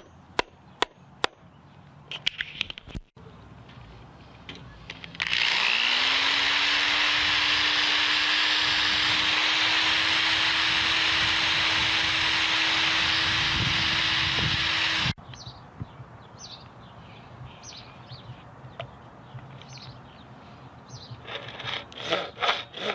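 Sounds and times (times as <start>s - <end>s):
electric drill boring into wood: 5.2s - 15.2s.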